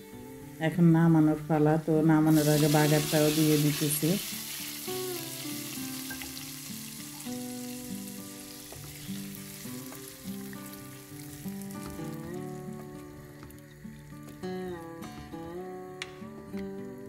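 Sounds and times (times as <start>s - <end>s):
soft plucked background music: 0.0s - 17.0s
oil sizzling in pot: 2.1s - 14.3s.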